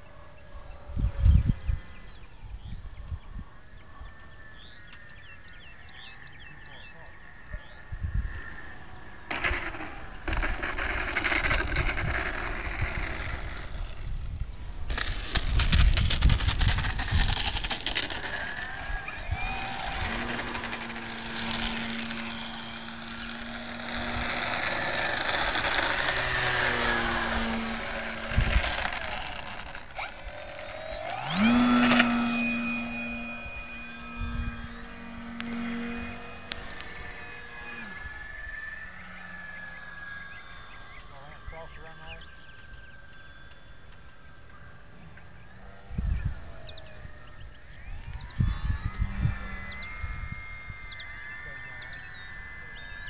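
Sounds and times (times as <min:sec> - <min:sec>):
electric motor whine: 0:00.0 - 0:53.0
wind buffeting microphone: 0:00.8 - 0:03.9, 0:07.5 - 0:38.7, 0:45.0 - 0:53.0.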